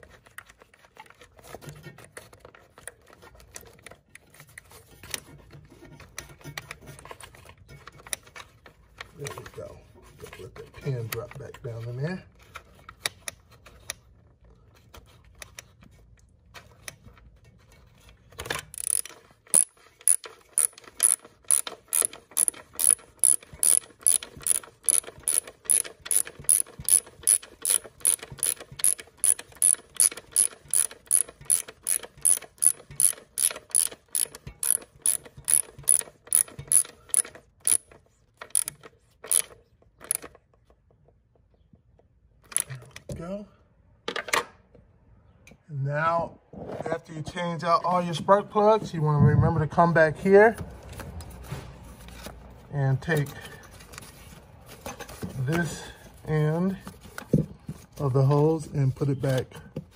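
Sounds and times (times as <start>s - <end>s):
ratchet wrench clicking: 18.7s - 40.3s.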